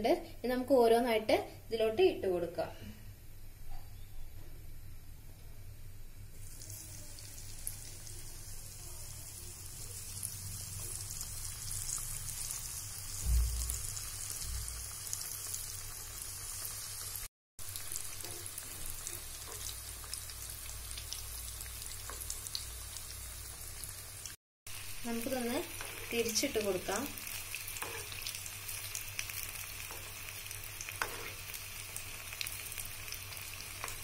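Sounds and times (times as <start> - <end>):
food sizzling in hot oil: 6.4 - 34.0
low thump: 13.2 - 13.9.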